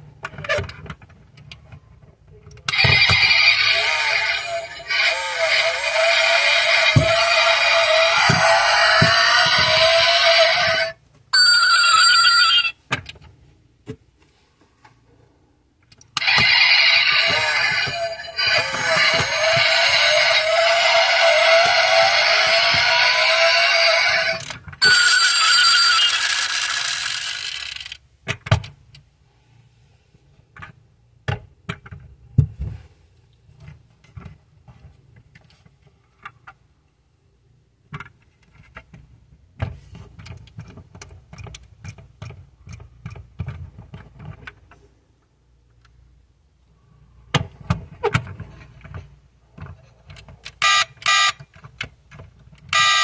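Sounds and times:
toy car sound effect: 0:02.6 - 0:12.8, 0:16.2 - 0:28.0, 0:50.6 - 0:51.4, 0:52.8 - 0:53.0
loud electronic tone bursts: 0:02.7 - 0:10.9, 0:16.2 - 0:27.5.

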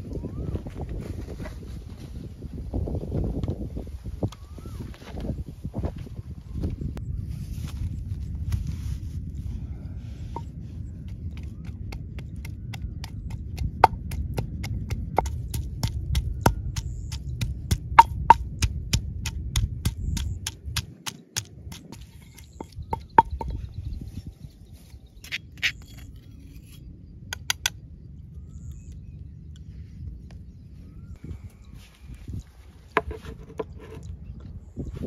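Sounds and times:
pestle pounding in stone mortar: 0:11.3 - 0:23.6.

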